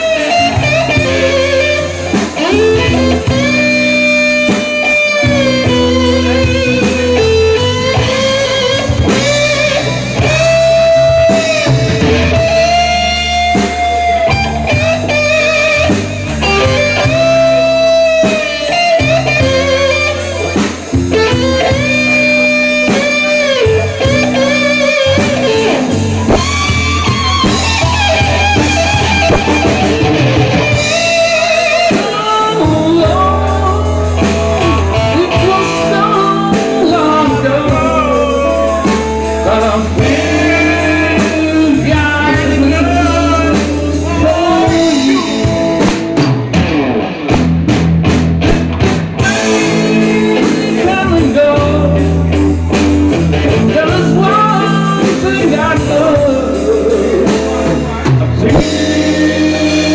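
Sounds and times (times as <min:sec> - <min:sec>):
man singing: 0:00.0 - 0:28.3, 0:30.7 - 0:46.1, 0:49.2 - 0:59.9
drum kit: 0:00.0 - 0:59.9
electric guitar through amplifier: 0:00.0 - 0:59.9.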